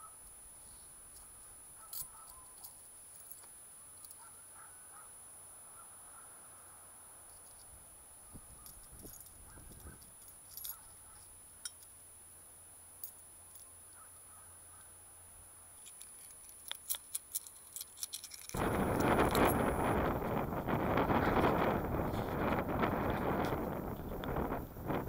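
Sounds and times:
wind buffeting microphone: 0:08.3 - 0:10.1, 0:18.6 - 0:25.0
coins clinking: 0:15.8 - 0:19.6.

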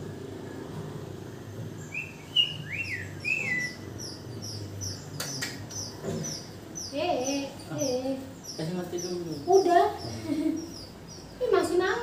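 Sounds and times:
nestlings chirping: 0:01.7 - 0:12.0
sharp click: 0:05.2 - 0:05.8.

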